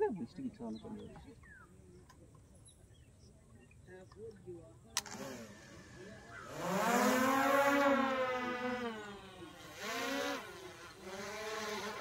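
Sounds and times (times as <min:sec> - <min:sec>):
drone propellers buzzing: 0:05.0 - 0:12.0.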